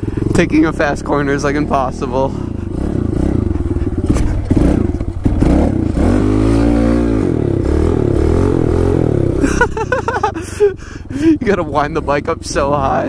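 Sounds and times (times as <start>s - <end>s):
bike rattling: 0.0s - 6.8s
motorbike engine revving: 0.0s - 13.0s.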